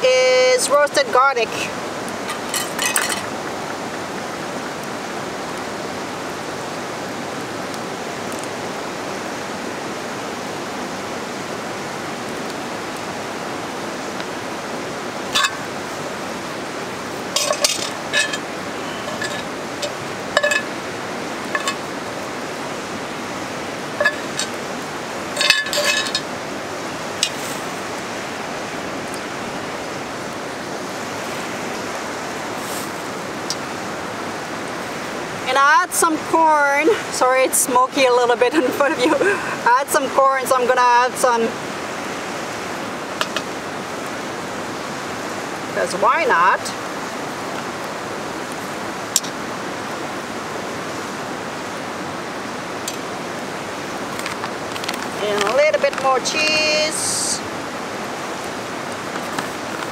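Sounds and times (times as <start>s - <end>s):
river rushing: 0.0s - 59.9s
metal utensil clinking on pans: 2.3s - 3.3s, 15.4s - 15.7s, 17.4s - 20.8s, 21.5s - 21.8s, 24.0s - 24.6s, 25.4s - 26.3s.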